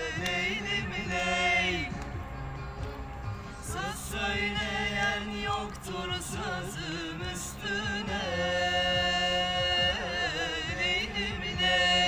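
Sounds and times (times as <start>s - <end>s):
person singing a song: 3.7s - 12.0s.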